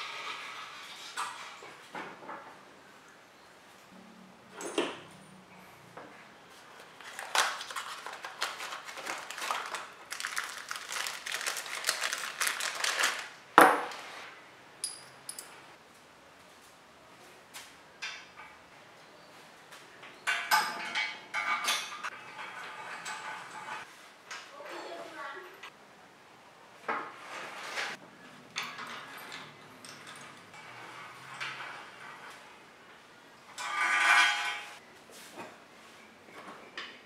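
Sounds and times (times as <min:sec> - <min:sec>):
plastic packaging crinkling: 0:06.8 - 0:13.4
parts clicking and rustling: 0:06.8 - 0:14.0
small metal part ringing: 0:14.8 - 0:15.5.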